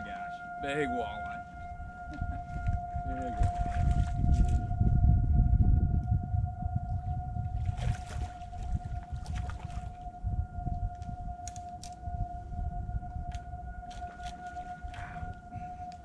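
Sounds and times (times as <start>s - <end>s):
steady high tone: 0.0s - 16.0s
loud low rumble: 1.5s - 8.0s.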